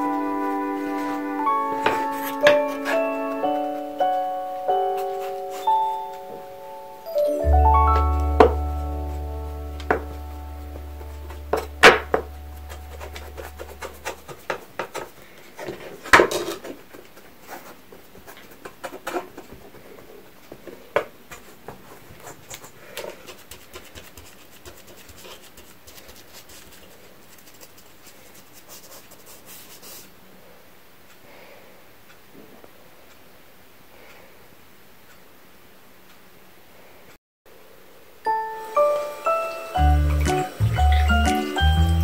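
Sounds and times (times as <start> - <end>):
sponge scrubbing utensils: 11.1 - 15.1.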